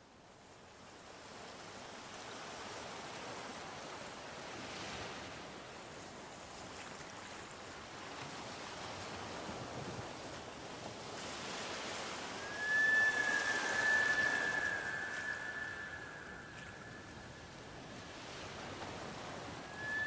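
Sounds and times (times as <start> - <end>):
sea surf washing onto beach: 8.0 - 20.0.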